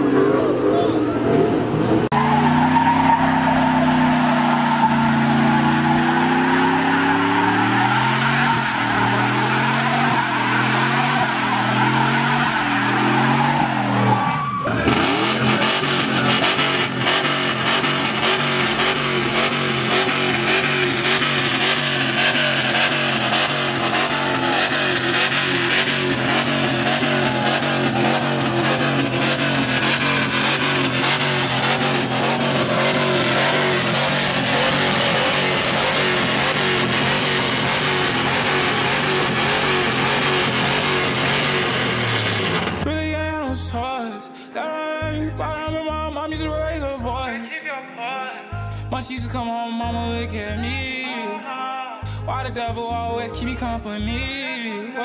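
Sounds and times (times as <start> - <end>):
steady noisy roar: 0.0 - 42.9
truck engine revving: 0.0 - 43.1
loud guitar music: 0.0 - 43.9
tyres spinning: 1.6 - 42.8.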